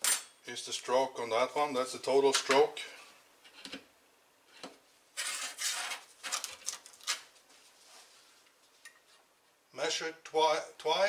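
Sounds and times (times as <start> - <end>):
metal scraping: 5.2 - 6.1.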